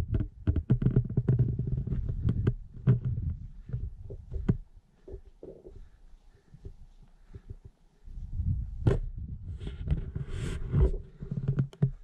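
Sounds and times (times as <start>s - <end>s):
wind buffeting microphone: 1.8s - 4.8s, 6.6s - 11.1s.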